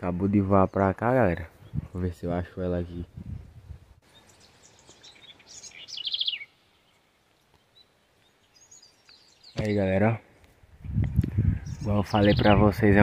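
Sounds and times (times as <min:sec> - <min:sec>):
faint high chirp: 0:04.0 - 0:09.8
wren singing: 0:04.0 - 0:10.2, 0:10.9 - 0:13.0.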